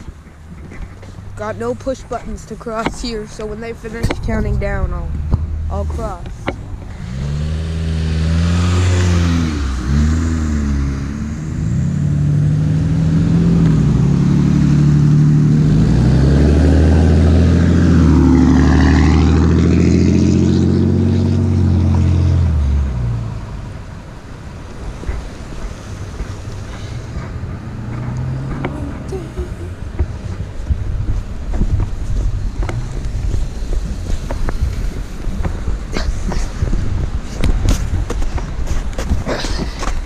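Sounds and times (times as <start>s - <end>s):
vehicle accelerating past: 6.9s - 35.9s.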